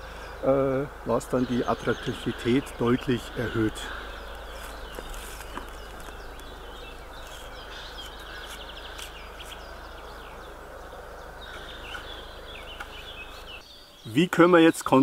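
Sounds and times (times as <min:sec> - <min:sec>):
birds chirping and singing: 0:00.0 - 0:15.0
outdoor background hiss: 0:00.0 - 0:15.0.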